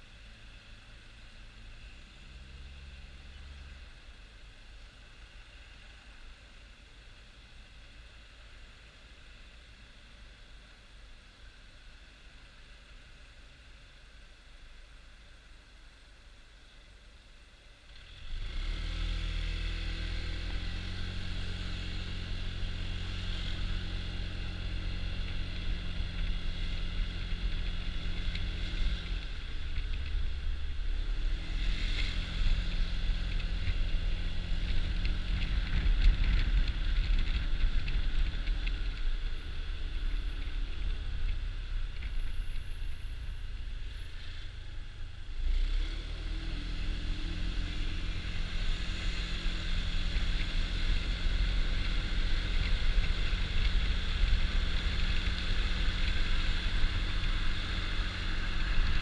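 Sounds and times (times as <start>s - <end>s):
wind and road noise: 0.0s - 59.0s
scooter engine running: 47.8s - 59.0s.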